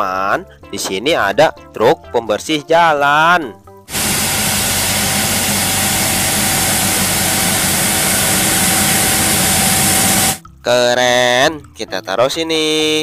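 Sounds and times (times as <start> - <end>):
loud even hiss: 3.9 - 10.4
street sweeper engine running: 3.9 - 10.4.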